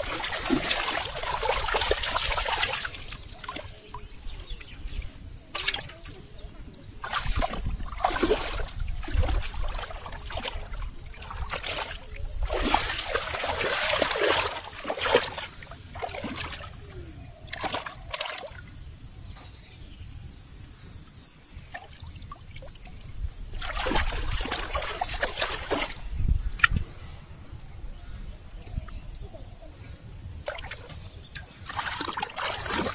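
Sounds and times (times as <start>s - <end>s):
water streaming off fish: 0.0s - 3.9s, 7.0s - 16.8s, 23.6s - 26.7s, 31.6s - 32.9s
hands splashing in muddy water: 0.0s - 4.7s, 5.5s - 6.2s, 7.0s - 18.6s, 22.8s - 26.8s, 30.4s - 32.9s.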